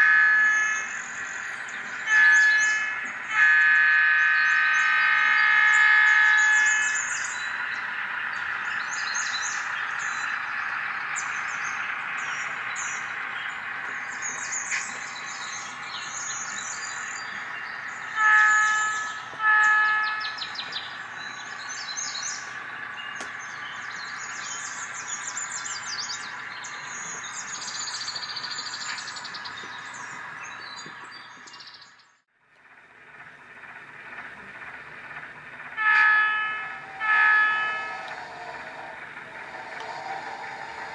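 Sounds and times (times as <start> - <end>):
locomotive horn: 0.0 - 1.1, 1.9 - 8.3, 16.8 - 21.8, 35.6 - 40.9
birds chirping: 0.0 - 32.2, 33.2 - 40.9
locomotive engine running: 0.0 - 40.9.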